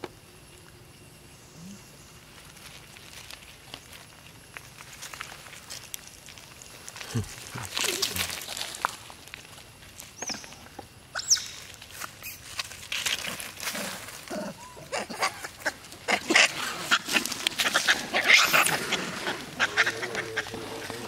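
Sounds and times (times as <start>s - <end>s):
macaques screeching: 11.1s - 11.6s, 13.8s - 21.0s
macaques squealing: 11.1s - 11.6s, 13.8s - 21.0s.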